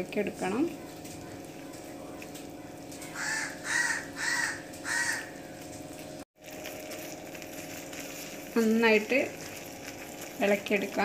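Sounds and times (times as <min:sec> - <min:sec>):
bird cawing: 0:02.6 - 0:05.7.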